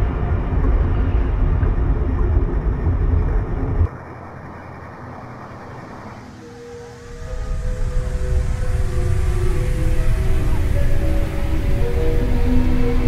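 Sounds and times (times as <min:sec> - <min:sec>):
steady hiss: 0:03.9 - 0:13.0
loud dense low rumble: 0:06.8 - 0:13.0.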